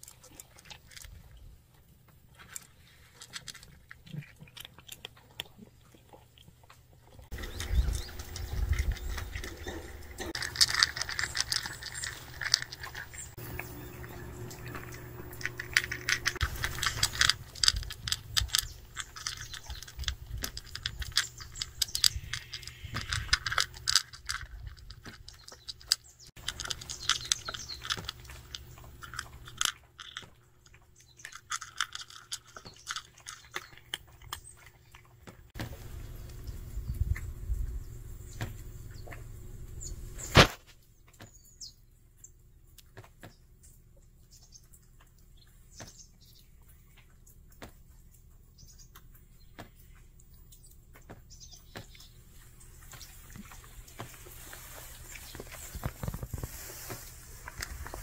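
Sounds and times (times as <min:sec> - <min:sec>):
cat crunching dry kibble: 0:00.0 - 0:37.3, 0:52.5 - 0:58.0.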